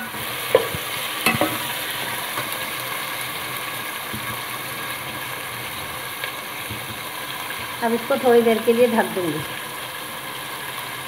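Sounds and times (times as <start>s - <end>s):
meat and onions sizzling in oil: 0.0s - 11.0s
ladle knocking and scraping pot: 0.5s - 1.8s.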